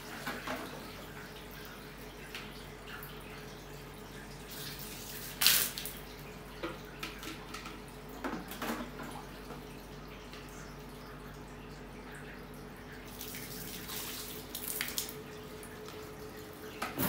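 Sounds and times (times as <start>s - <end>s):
water dripping: 0.2s - 17.0s
water splashing on metal: 4.6s - 7.8s, 13.1s - 16.0s.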